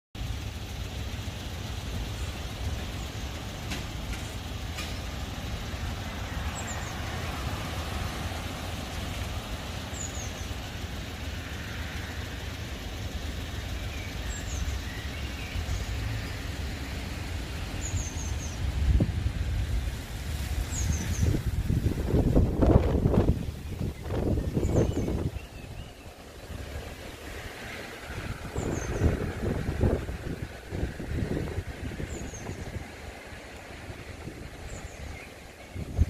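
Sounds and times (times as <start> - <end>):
low outdoor rumble: 0.2 - 36.0
small bird chirping: 13.5 - 18.7, 23.3 - 26.2.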